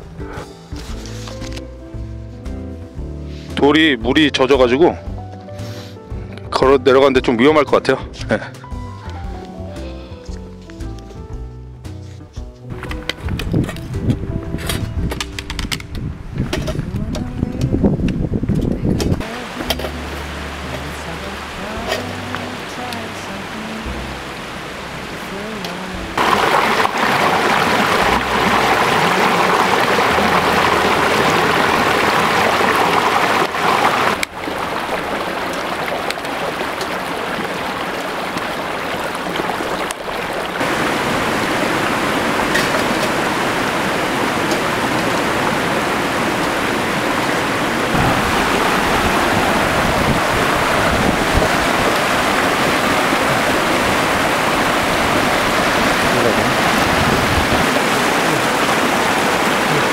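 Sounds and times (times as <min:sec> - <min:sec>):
stream rushing over stones: 0:19.2 - 0:59.9.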